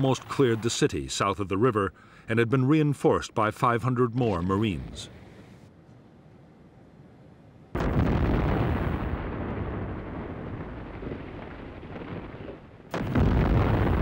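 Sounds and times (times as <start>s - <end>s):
explosion blasts: 7.8s - 14.0s.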